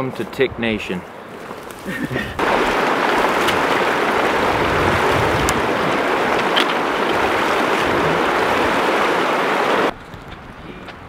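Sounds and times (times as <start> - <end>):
river rushing over rocks: 2.4 - 9.9.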